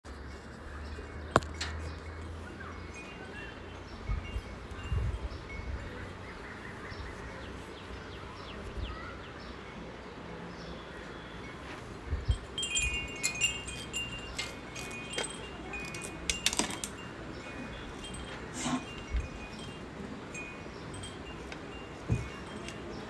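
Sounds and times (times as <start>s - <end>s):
wind chime tinkling: 2.8s - 6.2s, 11.5s - 23.0s.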